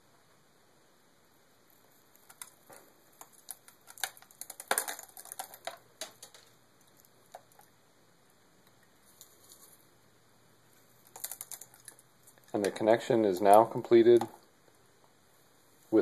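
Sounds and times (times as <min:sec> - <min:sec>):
dried herbs pattering on paper: 0:02.1 - 0:07.6, 0:11.0 - 0:14.3.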